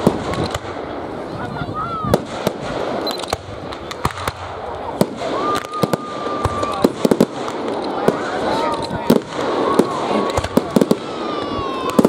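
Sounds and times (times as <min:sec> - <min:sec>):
fireworks bursting with sharp bangs: 0:00.0 - 0:12.0.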